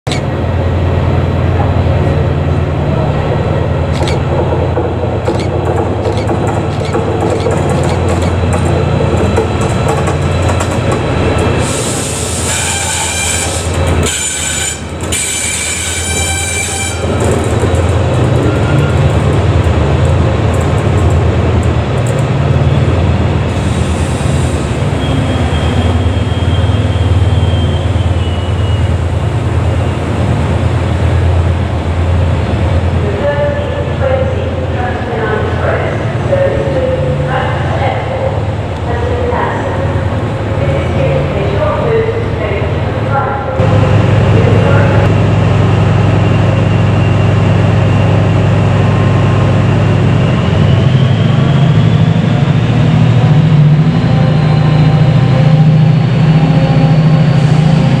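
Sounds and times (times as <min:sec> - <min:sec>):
diesel locomotive droning past: 0:08.1 - 0:58.0
high train squeal: 0:11.3 - 0:19.1, 0:22.6 - 0:30.2, 0:44.8 - 0:58.0.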